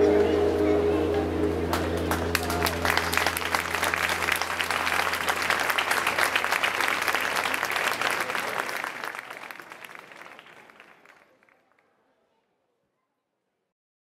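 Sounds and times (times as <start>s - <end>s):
audience applauding: 1.6s - 11.8s.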